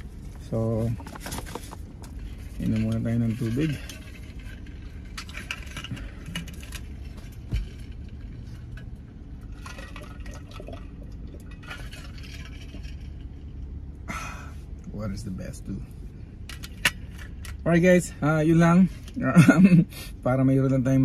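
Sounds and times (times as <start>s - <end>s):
car cabin hum: 0.0s - 3.8s
water sipping: 9.5s - 13.1s.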